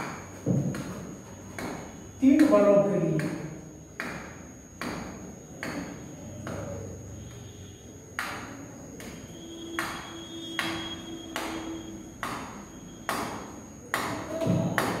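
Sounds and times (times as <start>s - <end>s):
marker pen on whiteboard: 3.2s - 7.6s, 8.2s - 15.0s.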